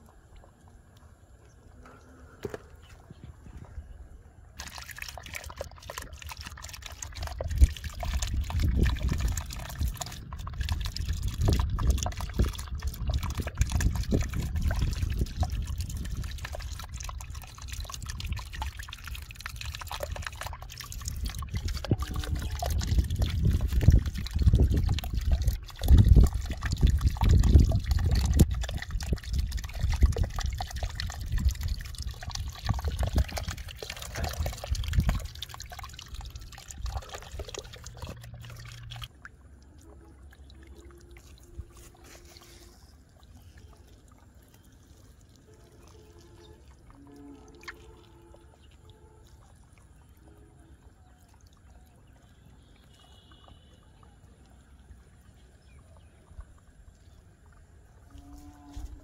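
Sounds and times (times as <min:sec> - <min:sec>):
water trickling into puddle: 0:00.0 - 0:59.0.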